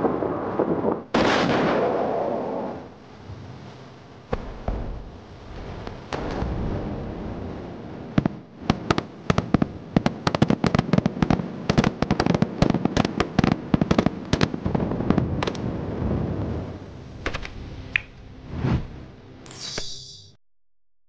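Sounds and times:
low steady rumbling: 2.9 - 19.4.

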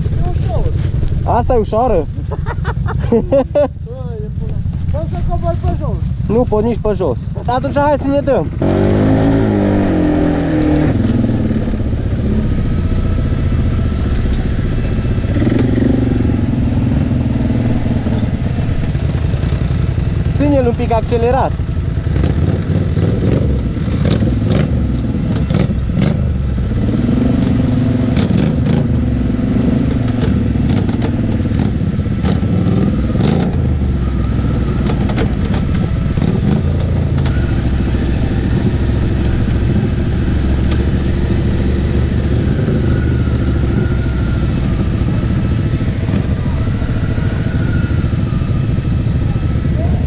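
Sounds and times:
atv engine revving: 0.0 - 50.0
sharp knocks and clatter: 29.9 - 33.6, 34.8 - 37.4.

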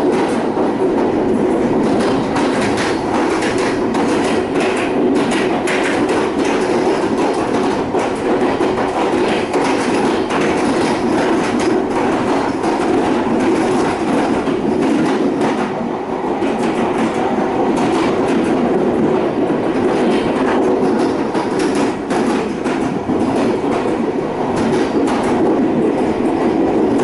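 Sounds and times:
wheels clacking over track: 0.0 - 15.8
train rumbling on rails: 0.0 - 27.0.

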